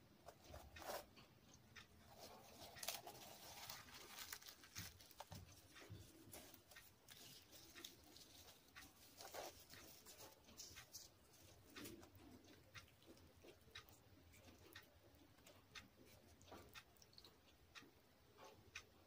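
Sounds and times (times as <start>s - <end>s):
fried bread crackling and tearing: 2.5s - 5.5s.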